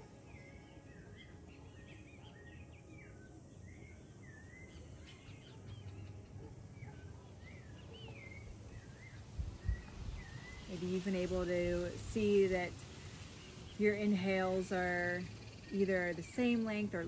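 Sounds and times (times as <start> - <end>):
birds chirping: 0.0 - 17.0
steady low rumble: 8.3 - 17.0.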